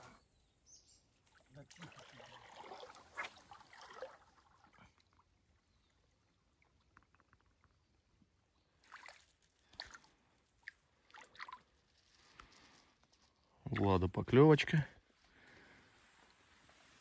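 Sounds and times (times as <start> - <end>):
stream water splashing: 1.3 - 5.2, 8.8 - 11.9.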